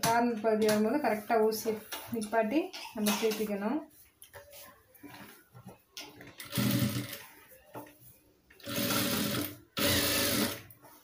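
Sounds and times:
sewing machine stitching: 0:06.4 - 0:07.2, 0:08.6 - 0:10.7.

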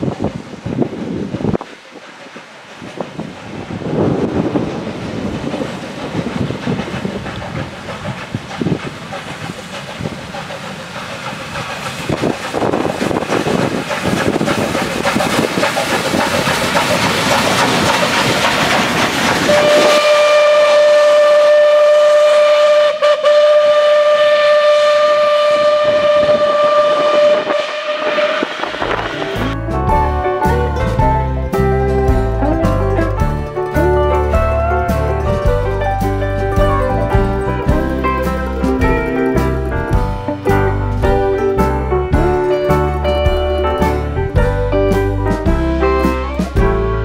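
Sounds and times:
train rumbling and wheel clatter: 0:00.0 - 0:47.0
steam whistle blast: 0:19.4 - 0:29.4.

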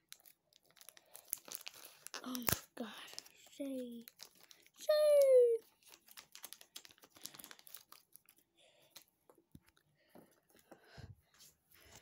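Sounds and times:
packaging crinkling and rustling: 0:00.0 - 0:09.1.

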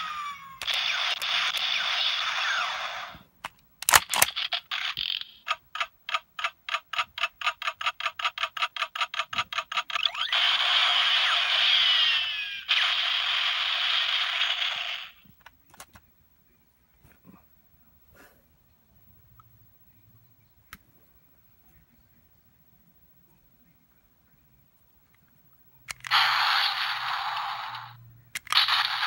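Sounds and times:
plastic clicks: 0:03.4 - 0:04.4, 0:15.3 - 0:16.1
firing sound effect blasts: 0:10.0 - 0:15.2, 0:26.0 - 0:29.0
toy gun electronic beeps: 0:25.9 - 0:29.0.

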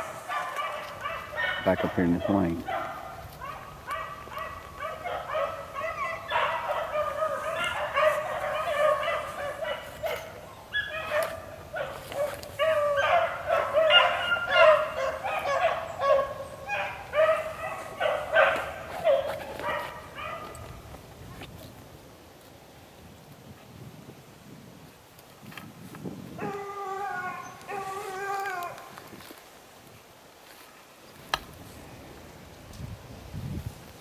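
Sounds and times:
hounds baying: 0:00.0 - 0:20.7, 0:26.4 - 0:29.0.

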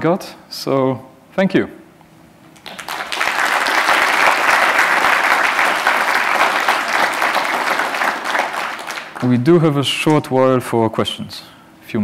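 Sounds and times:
audience applauding: 0:02.6 - 0:09.7.

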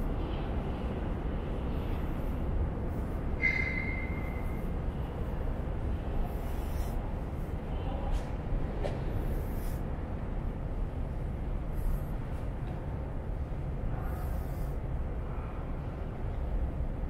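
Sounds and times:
steady low rumble: 0:00.0 - 0:17.0
high-pitched squeal: 0:03.3 - 0:04.5.

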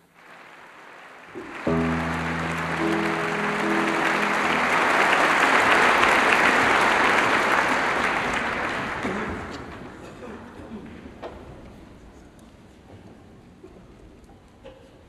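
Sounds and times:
audience applause: 0:00.0 - 0:10.0
piano notes ringing: 0:01.4 - 0:08.0.

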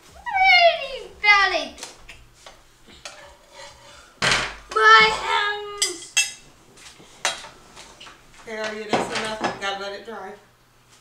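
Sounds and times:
metal spatula scraping griddle: 0:03.1 - 0:04.2.

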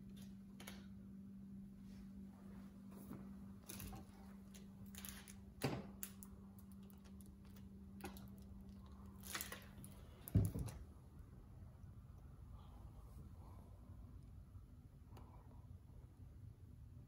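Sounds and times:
thump of object set down: 0:10.3 - 0:10.8.

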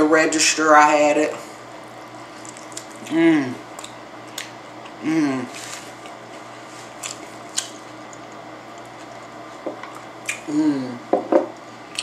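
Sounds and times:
room hum: 0:00.0 - 0:12.0
mouth clicks and smacks: 0:02.4 - 0:03.2, 0:03.8 - 0:04.5, 0:09.9 - 0:10.5.

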